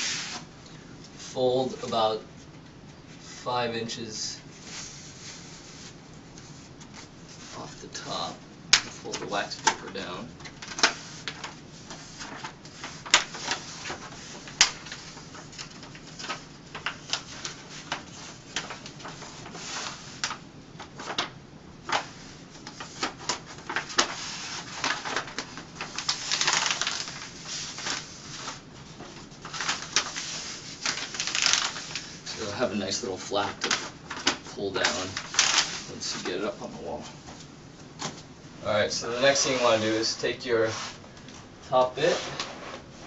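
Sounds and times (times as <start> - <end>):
paper rustle: 4.5 - 38.2, 39.0 - 41.0
wax paper crinkling: 4.6 - 36.7.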